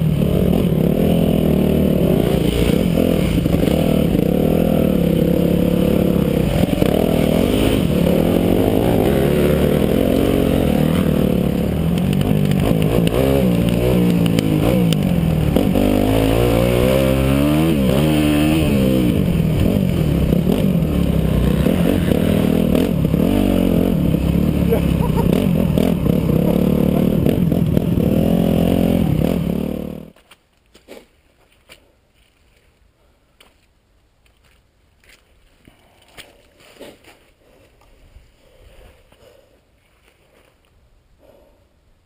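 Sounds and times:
motocross bike engine revving: 0:00.0 - 0:30.2.

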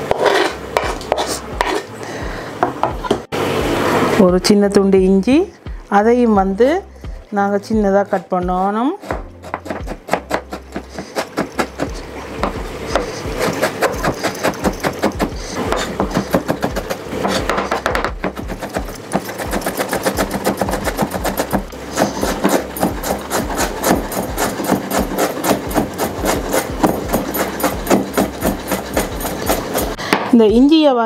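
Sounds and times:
knife chopping on cutting board: 0:00.0 - 0:01.8, 0:09.0 - 0:30.3.

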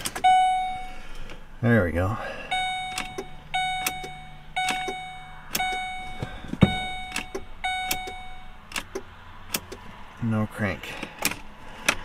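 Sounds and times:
dashboard warning chime: 0:00.1 - 0:01.3, 0:02.2 - 0:08.7.

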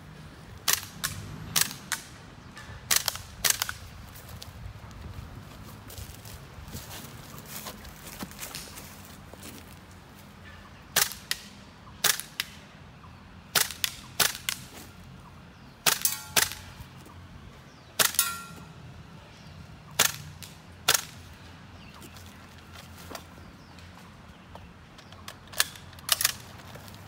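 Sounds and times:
airsoft rifle shots: 0:00.6 - 0:02.1, 0:10.9 - 0:12.6, 0:13.5 - 0:14.7, 0:15.8 - 0:16.8, 0:18.0 - 0:18.5, 0:20.0 - 0:21.3.

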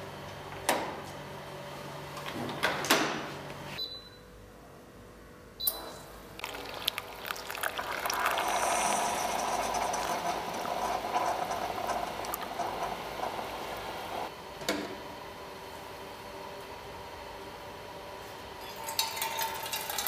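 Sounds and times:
coffee streaming into cup: 0:06.4 - 0:14.3
hot water hissing: 0:06.4 - 0:14.3.

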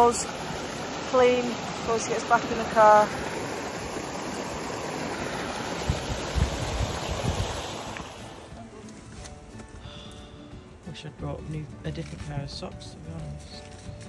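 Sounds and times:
stream rushing over stones: 0:00.0 - 0:08.6.

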